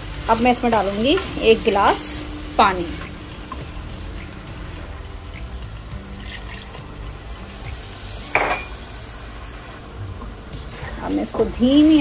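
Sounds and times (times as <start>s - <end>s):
lentils sizzling in a pot: 0.0s - 12.0s
water pouring: 2.0s - 11.2s
sharp glass clink: 8.4s - 8.8s.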